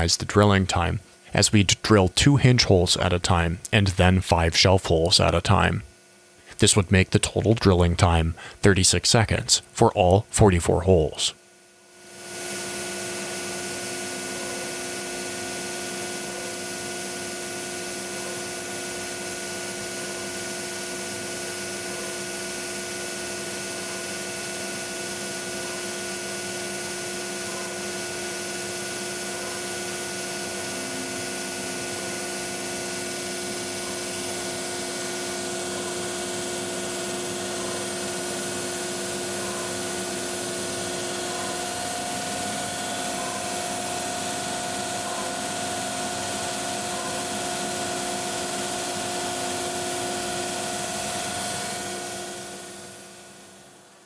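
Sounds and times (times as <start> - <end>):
cnc router drilling plywood: 12.2 - 53.3.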